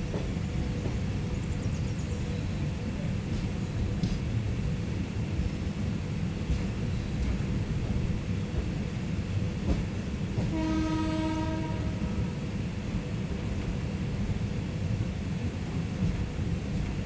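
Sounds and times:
low rumble of moving train: 0:00.0 - 0:17.0
electric locomotive horn blast: 0:10.4 - 0:12.3.

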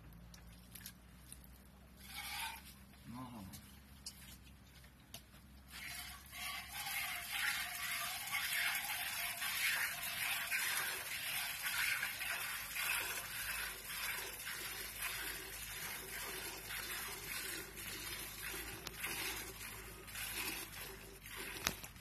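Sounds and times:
milk spurting into metal bucket: 0:02.0 - 0:02.8, 0:05.6 - 0:22.0.

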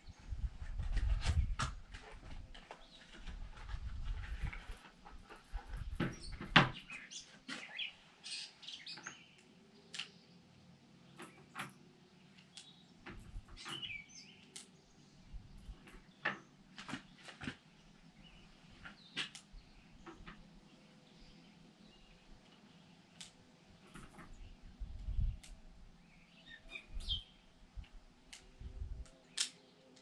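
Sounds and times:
bird chirps: 0:05.8 - 0:10.4, 0:11.1 - 0:15.3, 0:23.9 - 0:27.5.

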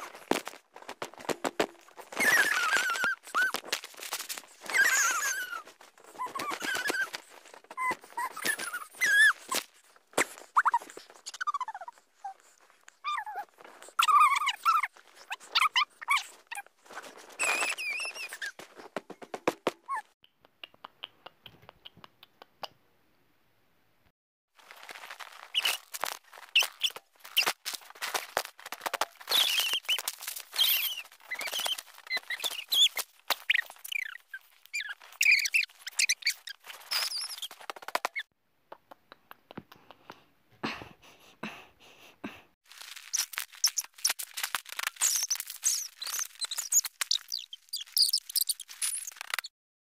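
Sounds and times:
sped-up squeaky voices: 0:02.1 - 0:03.7, 0:04.5 - 0:09.6, 0:10.2 - 0:22.0, 0:28.9 - 0:38.3, 0:43.1 - 0:49.5.

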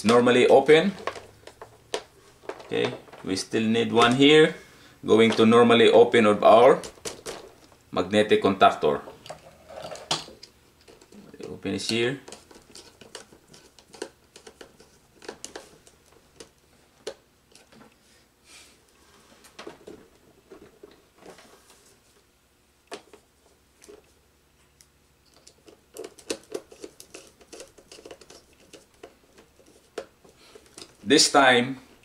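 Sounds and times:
stiff wires rustling: 0:00.0 - 0:08.0.

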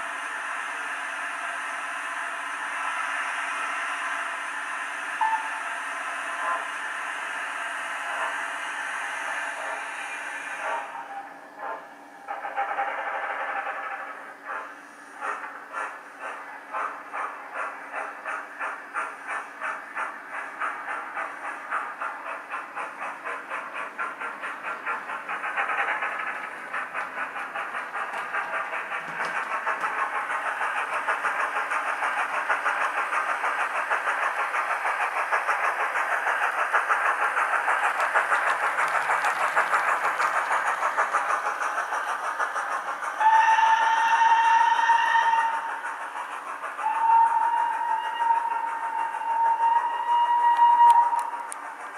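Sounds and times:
steam locomotive exhaust chuffs: 0:00.0 - 0:51.9
steam whistle: 0:05.2 - 0:06.6, 0:43.2 - 0:45.7, 0:46.8 - 0:51.5.

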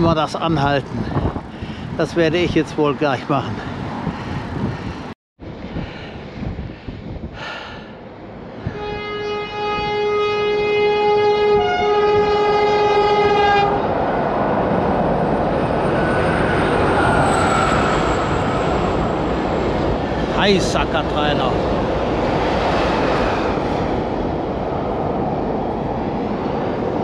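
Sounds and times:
train horn blast: 0:08.6 - 0:13.9.

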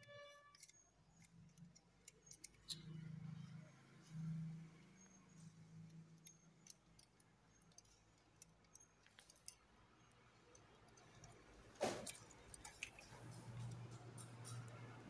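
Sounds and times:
small clicks of wires: 0:05.3 - 0:15.0.

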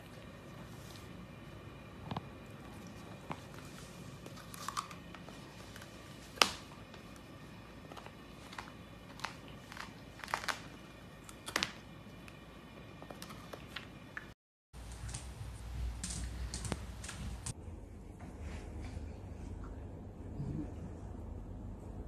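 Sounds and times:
dog claws clicking on hard floor: 0:14.9 - 0:17.6.

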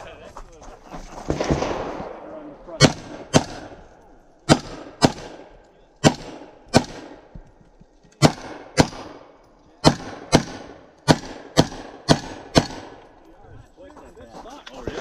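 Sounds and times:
rifle shots: 0:01.2 - 0:07.3, 0:08.2 - 0:13.2.

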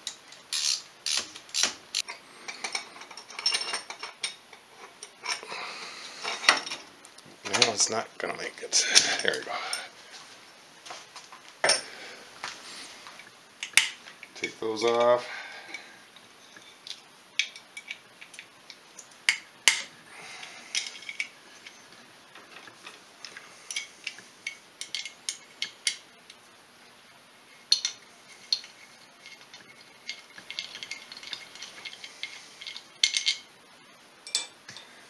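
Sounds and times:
wrench and bolts clinking: 0:00.6 - 0:04.4, 0:27.7 - 0:33.5.

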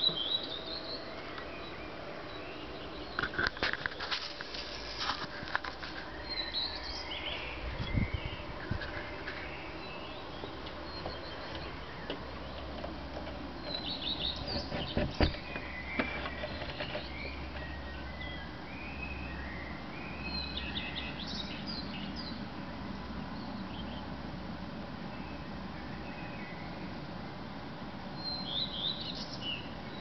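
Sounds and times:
redstart singing: 0:00.0 - 0:04.5, 0:05.9 - 0:22.5, 0:28.2 - 0:30.0.

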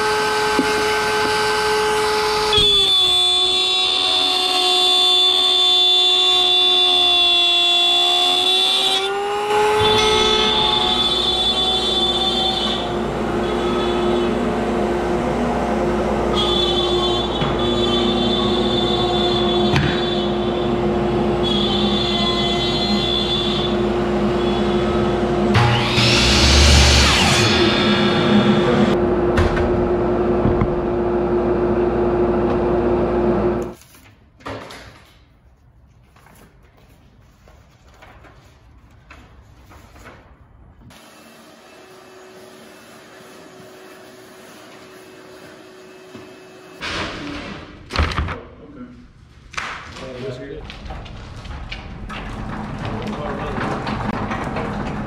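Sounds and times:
router whining: 0:00.0 - 0:29.1
dust extractor humming: 0:08.5 - 0:33.8, 0:40.9 - 0:46.9.

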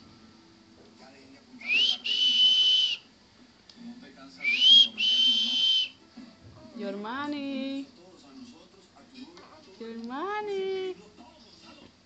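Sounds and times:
rising then held whistles: 0:01.7 - 0:03.1, 0:04.5 - 0:06.0.

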